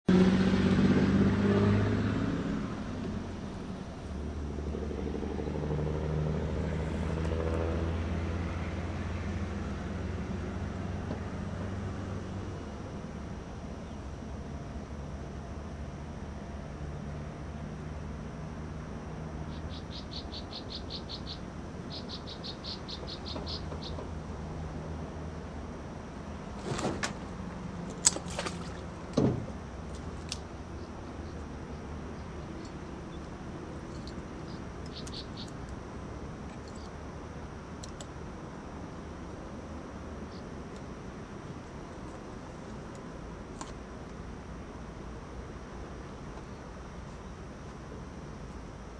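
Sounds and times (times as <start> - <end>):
boat motor humming: 0.0 - 48.9.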